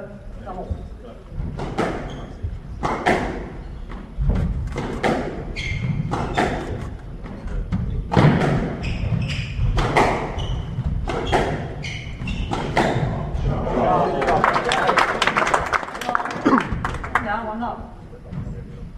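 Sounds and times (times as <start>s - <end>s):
squash ball hitting rackets and walls: 1.4s - 13.5s
shoes squeaking on wooden floor: 1.7s - 2.8s, 3.6s - 13.3s.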